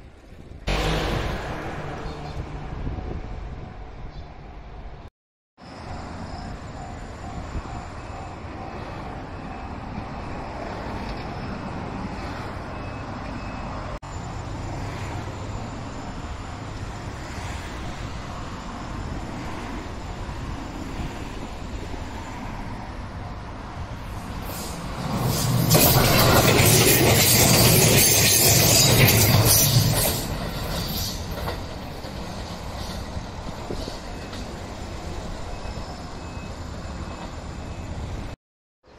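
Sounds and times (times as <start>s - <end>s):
electric train rumbling past: 0.6s - 5.0s, 5.6s - 38.4s
level-crossing warning bell: 6.1s - 17.6s.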